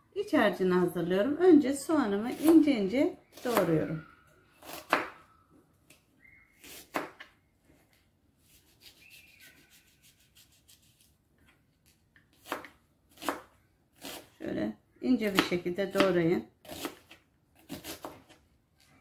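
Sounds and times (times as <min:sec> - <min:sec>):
knife chopping onion: 0:02.2 - 0:03.9, 0:04.6 - 0:05.2, 0:06.6 - 0:07.2, 0:12.4 - 0:14.4, 0:15.2 - 0:18.4.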